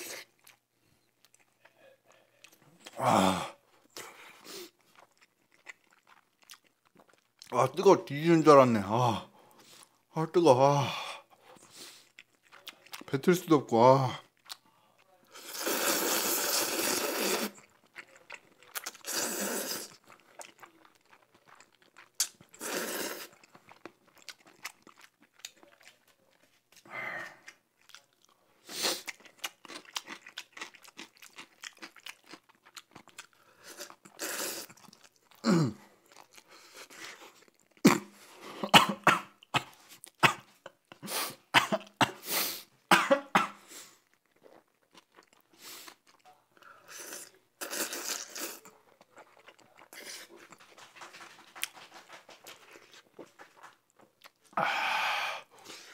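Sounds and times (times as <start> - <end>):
wet chewing with smacking: 0.2 - 3.0, 3.9 - 7.5, 11.5 - 13.1, 17.6 - 19.1, 19.9 - 22.6, 23.3 - 28.4, 29.0 - 35.4
noodles slurping: 15.3 - 26.1.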